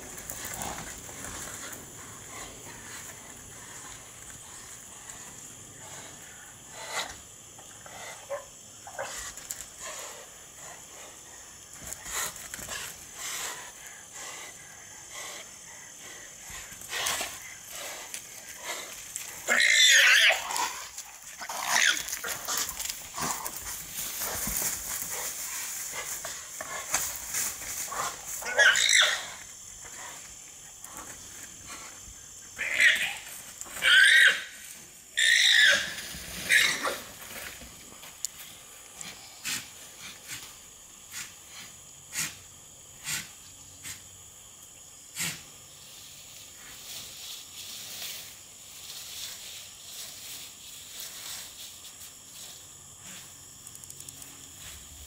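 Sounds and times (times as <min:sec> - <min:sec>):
alpacas screaming: 0:19.5 - 0:20.8, 0:21.5 - 0:22.2, 0:28.4 - 0:29.4, 0:32.6 - 0:34.6, 0:35.2 - 0:37.0.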